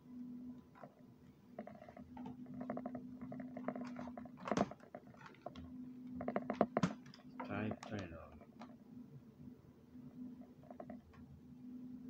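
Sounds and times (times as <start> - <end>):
faint steady hum: 0.0 - 12.0
laptop clicks and scrapes: 0.7 - 8.7, 10.3 - 11.2.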